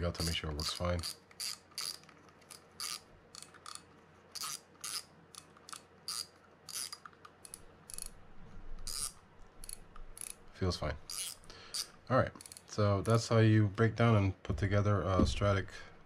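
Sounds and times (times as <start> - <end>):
fishing reel drag clicking: 0.6 - 3.8, 4.4 - 8.2, 8.8 - 10.4, 11.1 - 12.7.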